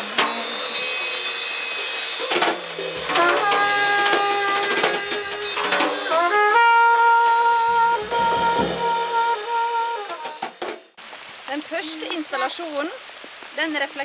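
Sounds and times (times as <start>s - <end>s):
low bass notes: 3.0s - 10.1s.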